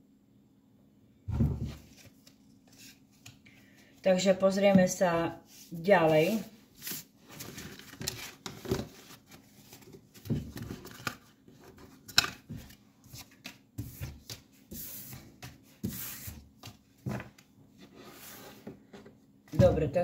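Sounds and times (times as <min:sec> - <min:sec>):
cards rustling and tapping: 0:06.8 - 0:17.5.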